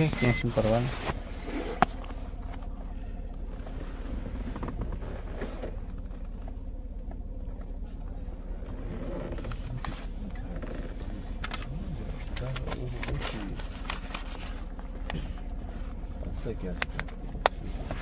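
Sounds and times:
car engine humming: 0.0 - 18.0
wallet ticks and rustles: 9.4 - 16.0.

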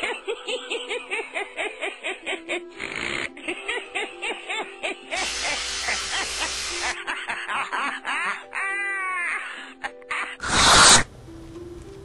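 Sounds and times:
brief hiss of noise: 10.4 - 11.1.

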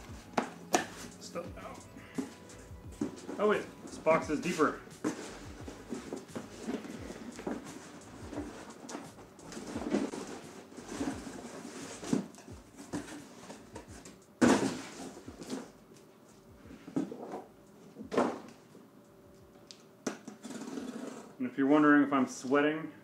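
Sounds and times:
cardboard rustling and scraping: 0.2 - 15.8, 20.4 - 21.3
box thumping down: 3.0 - 3.7, 12.0 - 15.7, 18.0 - 18.5.

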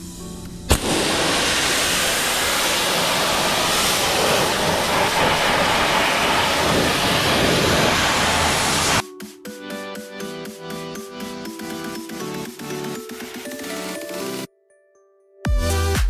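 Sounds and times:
pressure washer spray hissing: 0.7 - 9.0.

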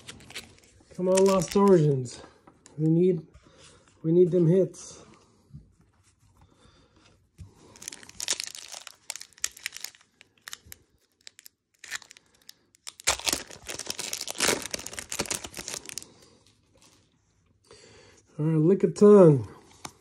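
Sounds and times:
foil wrapper crinkling and tearing: 0.0 - 1.9, 7.6 - 17.0.

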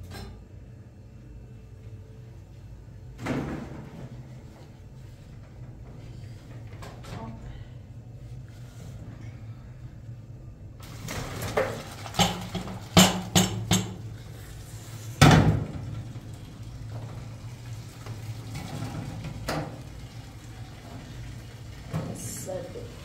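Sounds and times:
steady low hum: 0.0 - 11.8, 12.5 - 23.0
kitchenware knocks and clinks: 12.2 - 14.0.

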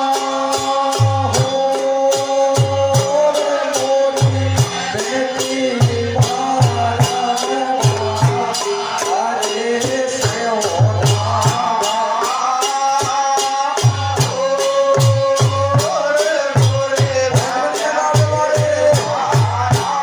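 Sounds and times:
jingling percussion beat: 0.0 - 20.0
low drum pattern: 4.1 - 12.0.

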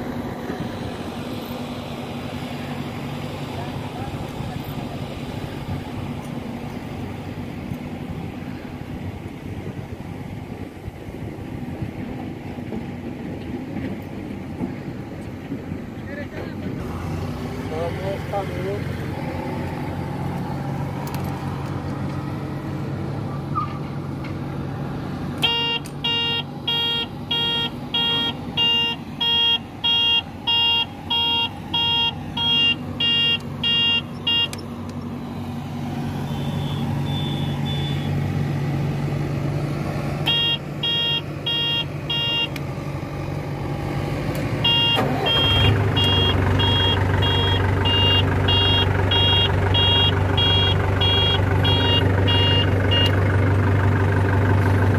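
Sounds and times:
road roller engine running: 0.0 - 54.9
warning beeper beeping: 25.4 - 34.6, 36.2 - 38.1, 40.3 - 42.6, 44.6 - 53.1.

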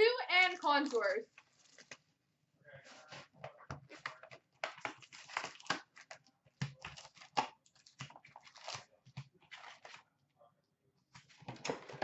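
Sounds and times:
foil packs crinkling: 4.7 - 6.2.

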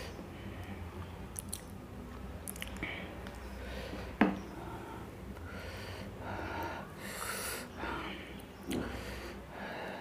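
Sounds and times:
person eating: 1.3 - 1.8, 2.4 - 3.4
person breathing noisily: 2.8 - 10.0.

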